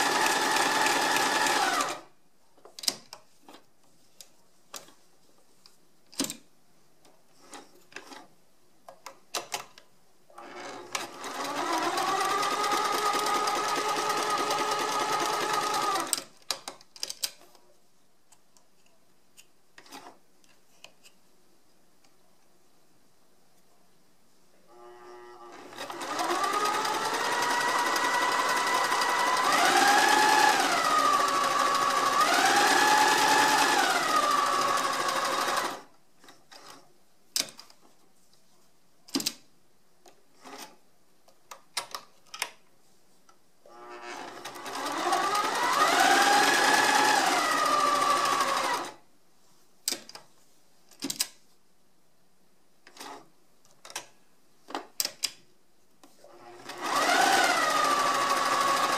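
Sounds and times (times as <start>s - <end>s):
sewing machine motor whine: 0.0s - 2.0s, 25.5s - 35.8s, 43.8s - 48.9s, 56.6s - 58.9s.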